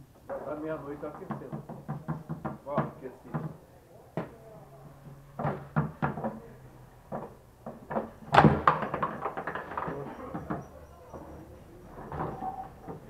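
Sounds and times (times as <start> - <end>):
foosball clacking and knocking: 0.2 - 3.6, 5.4 - 11.4.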